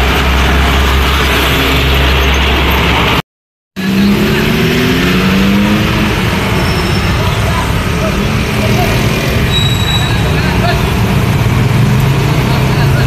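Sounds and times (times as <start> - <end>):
bus pulling away: 0.0 - 3.2, 3.8 - 13.0
motorbike and cars passing: 3.8 - 13.0.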